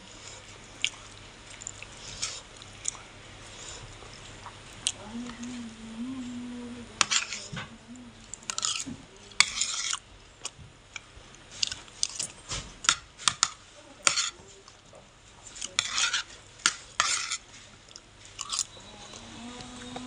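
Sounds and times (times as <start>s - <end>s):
metal spoon scraping a plate: 7.0s - 7.6s, 8.5s - 10.0s, 13.3s - 14.4s, 15.7s - 17.4s.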